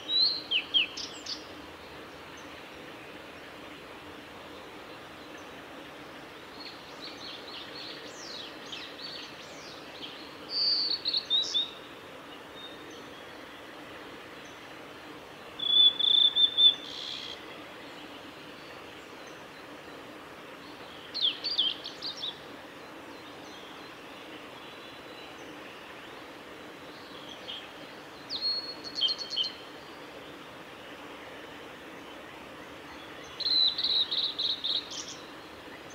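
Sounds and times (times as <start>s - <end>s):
background hiss: 0.0s - 35.9s
bird whistled song: 15.6s - 17.4s, 33.4s - 35.1s.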